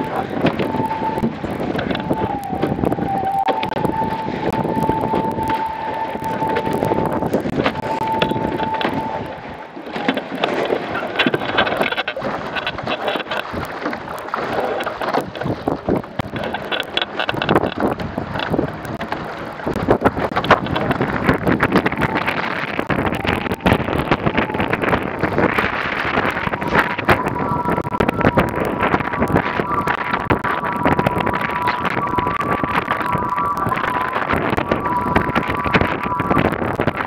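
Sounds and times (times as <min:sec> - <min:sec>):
water rushing along hull: 0:00.0 - 0:37.0
wind buffeting microphone: 0:00.0 - 0:37.0
steady high whistle: 0:00.5 - 0:09.4, 0:25.9 - 0:37.0.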